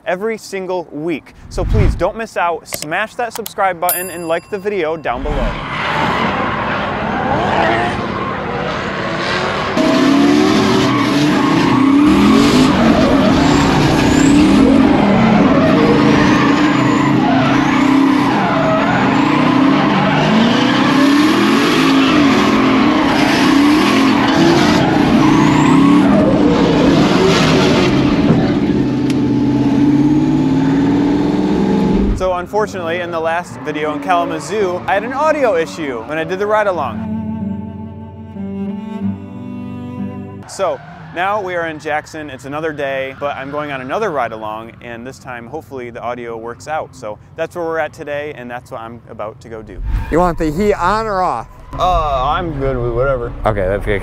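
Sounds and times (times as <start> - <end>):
tyres skidding and squealing: 4.0 - 37.6, 38.3 - 54.0
car engine revving: 5.6 - 37.3.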